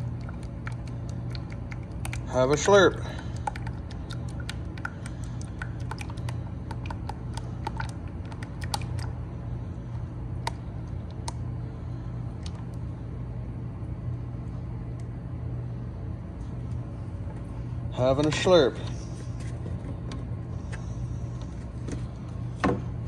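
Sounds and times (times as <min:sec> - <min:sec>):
oil glugging from a plastic bottle: 0:00.0 - 0:09.2
steady low hum: 0:00.0 - 0:23.0.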